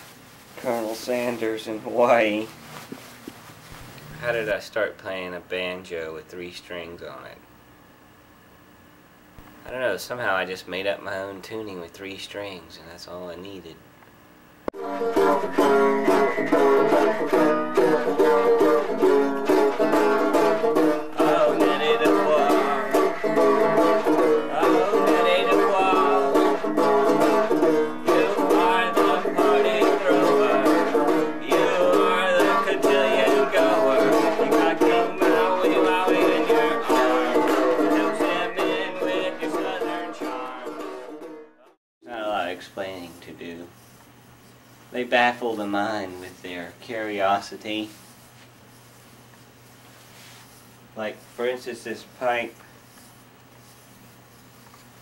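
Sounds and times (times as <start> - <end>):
banjo plucked notes: 14.8 - 41.8.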